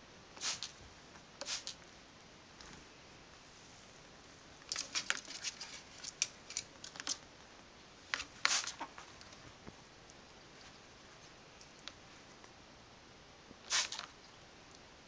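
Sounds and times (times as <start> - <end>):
spray bottle squirting water: 0.4 - 0.7, 1.4 - 1.8, 8.4 - 8.8, 13.7 - 14.1.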